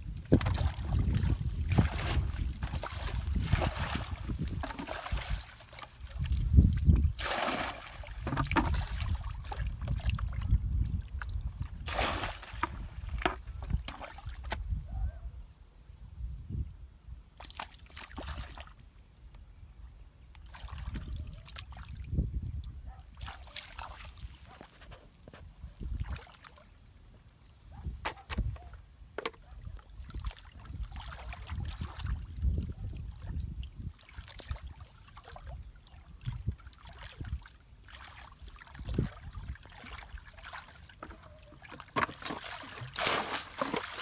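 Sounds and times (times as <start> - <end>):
muddy water sloshing and splashing: 0.0 - 14.7, 17.4 - 18.8, 20.4 - 25.0, 25.8 - 26.8, 29.4 - 44.0
wind noise on microphone: 0.0 - 17.3, 20.6 - 23.4, 24.0 - 26.3, 27.7 - 28.8, 29.4 - 37.4, 38.6 - 40.2.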